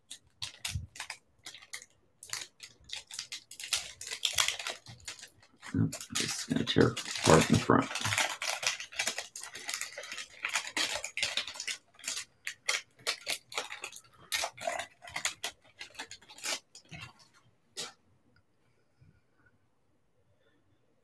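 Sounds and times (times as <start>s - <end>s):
foil wrapper torn and crinkled: 0.0s - 17.2s.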